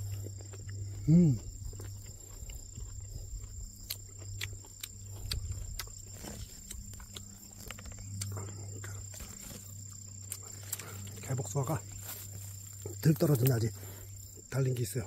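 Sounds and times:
steady low hum: 0.0 - 15.0
footsteps through grass: 10.5 - 13.6.

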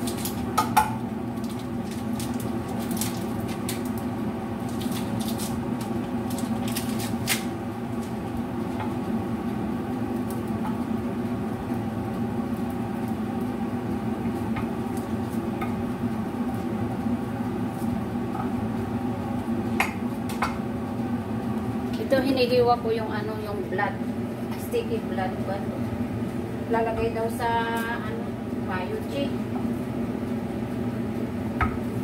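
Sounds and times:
small clicks and pops from pan: 0.0 - 4.0, 10.2 - 10.8, 19.7 - 20.6
food cooking in a covered wok: 0.0 - 32.0
gas hob hum and hiss: 0.0 - 32.0.

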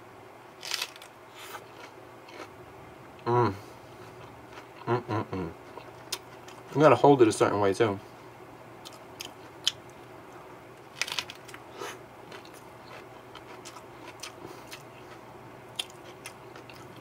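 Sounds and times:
crunching lettuce while chewing: 0.6 - 2.5, 10.9 - 17.0.

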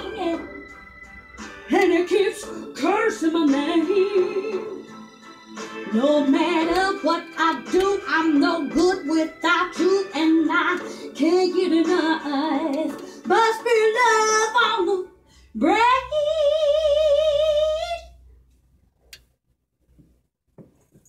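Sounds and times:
woman singing: 0.0 - 0.6, 1.7 - 4.8, 5.8 - 18.1
karaoke backing track: 0.0 - 15.0.

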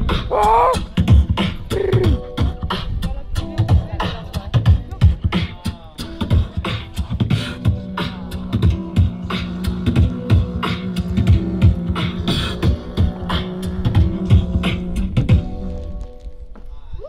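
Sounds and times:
beatboxing kick and snare: 0.0 - 15.6
sustained low drone: 6.4 - 16.0.

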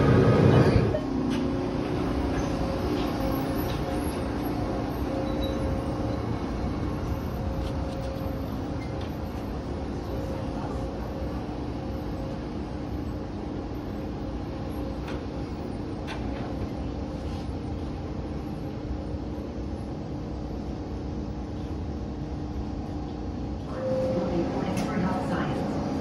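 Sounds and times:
guideway vehicle running rumble: 0.0 - 22.4.

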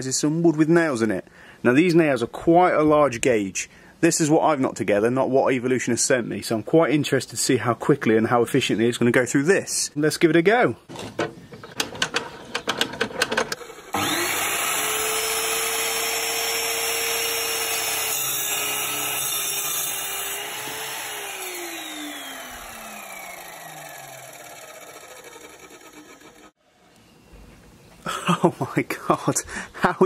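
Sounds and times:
chop saw cutting timber: 13.6 - 26.6.

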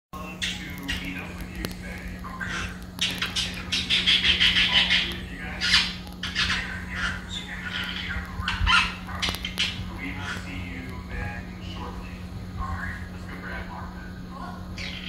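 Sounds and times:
parrot squawking: 0.2 - 10.8, 14.7 - 15.0
steady low hum: 0.2 - 15.0.

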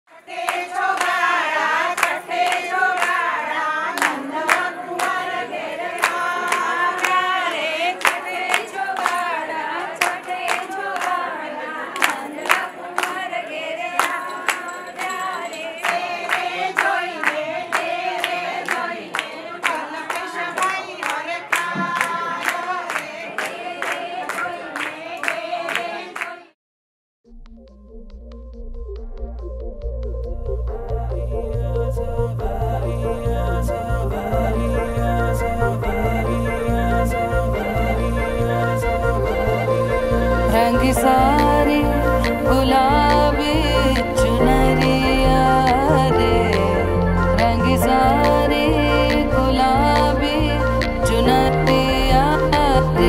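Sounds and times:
women singing a folk song: 0.1 - 26.5, 31.0 - 53.0
sharp hand claps: 0.4 - 3.3, 4.0 - 5.2, 6.0 - 9.3, 10.0 - 11.3, 12.0 - 13.2, 14.0 - 26.4.

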